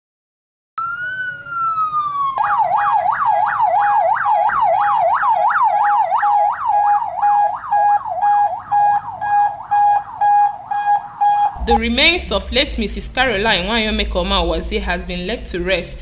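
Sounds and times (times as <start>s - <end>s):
electronic siren wailing and yelping: 0.8s - 11.7s.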